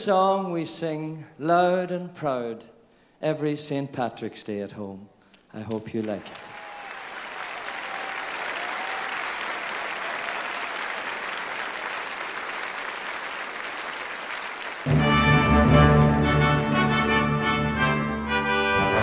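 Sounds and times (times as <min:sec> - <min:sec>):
audience applauding: 0:06.0 - 0:15.9
band with brass playing: 0:14.8 - 0:19.0.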